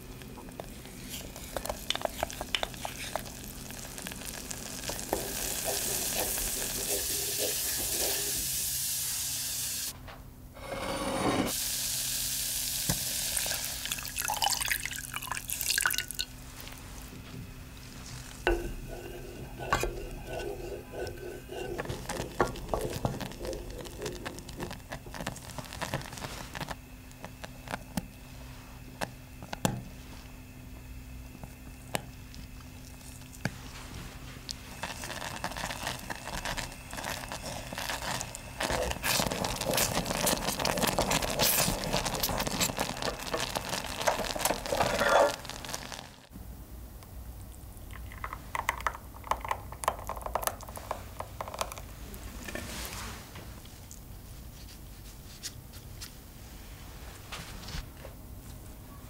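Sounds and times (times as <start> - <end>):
butter sizzling in a saucepan: 0.0 - 9.9, 10.7 - 16.8, 17.8 - 27.8, 34.5 - 46.3
milk pouring: 13.4 - 17.1, 17.8 - 26.5
spoon clicking and scraping pan: 18.5 - 24.4.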